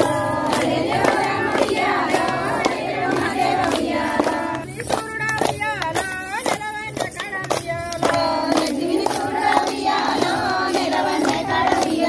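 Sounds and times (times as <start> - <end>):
hand claps: 0.0 - 12.0
women singing folk song: 0.0 - 12.0.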